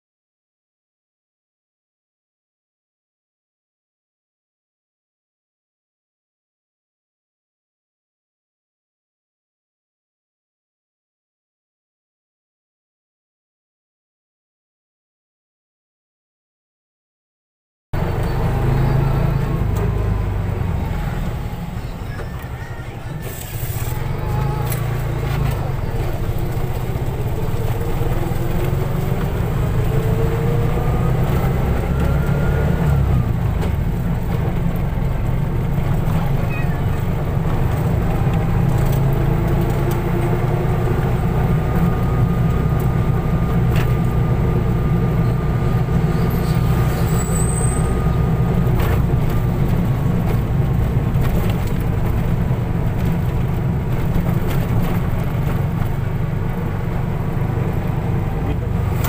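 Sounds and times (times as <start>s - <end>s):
car engine rumble: 18.0s - 59.0s
road noise: 18.0s - 59.0s.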